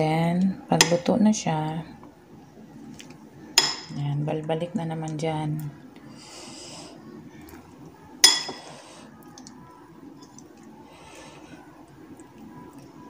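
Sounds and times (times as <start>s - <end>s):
metal utensil clinking on bowl: 8.2s - 8.6s.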